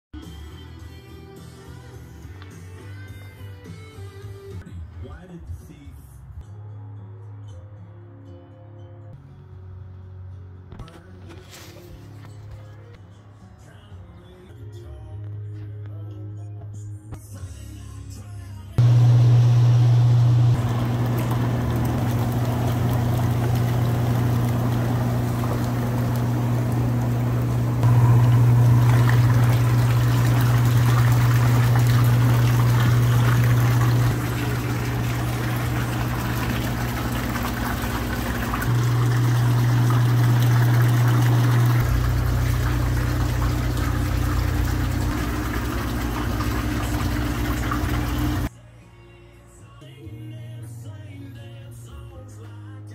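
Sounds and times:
hot tub water churning: 0:18.8 - 0:48.5
low motor hum: 0:18.8 - 0:48.5.

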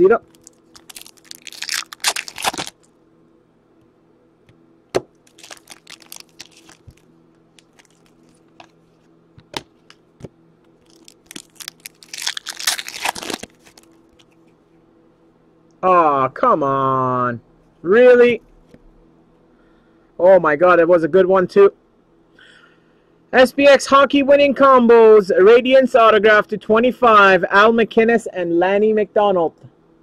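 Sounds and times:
foil wrappers crinkling: 0:00.2 - 0:02.9, 0:05.2 - 0:10.0, 0:10.8 - 0:14.5.

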